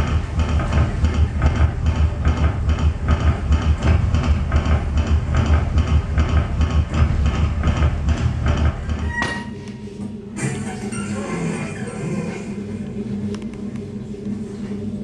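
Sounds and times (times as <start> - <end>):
deep pulsing beat: 0.0 - 9.2
clatter: 0.0 - 9.4.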